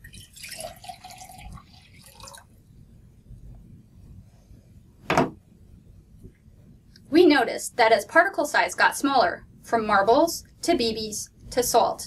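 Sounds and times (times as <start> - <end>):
water pouring into a beaker: 0.0 - 2.6.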